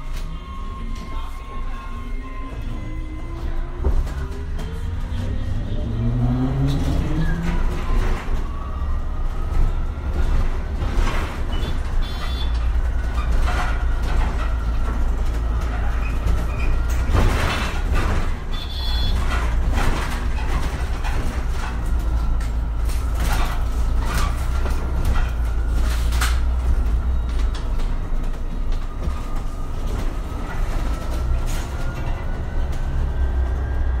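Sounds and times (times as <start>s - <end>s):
bus engine rumble: 0.0s - 34.0s
rattles and knocks: 9.3s - 33.2s.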